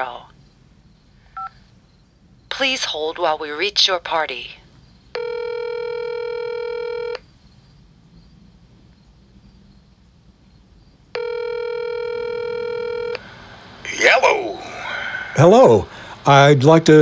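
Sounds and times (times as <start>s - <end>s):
telephone ringback tone: 5.2s - 7.2s, 11.2s - 13.2s.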